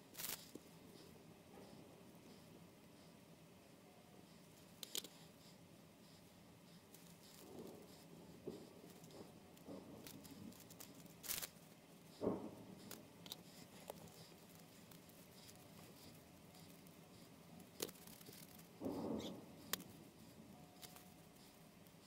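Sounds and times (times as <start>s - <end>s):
sculpting tools clicking and rustling: 4.8s - 5.2s, 7.0s - 22.0s.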